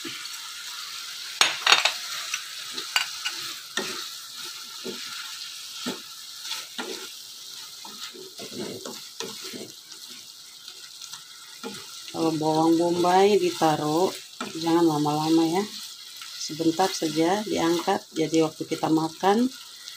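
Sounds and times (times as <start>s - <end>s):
chicken sizzling in a frying pan: 0.0s - 19.9s
spatula knocking and scraping pan: 1.4s - 4.1s, 7.7s - 10.2s.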